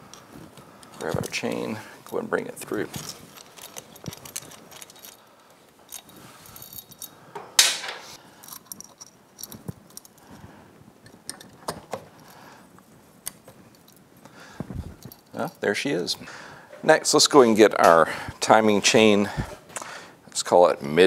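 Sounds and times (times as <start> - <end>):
chain clinking and rattling on metal: 0.9 - 7.3, 8.3 - 10.4, 13.6 - 16.2.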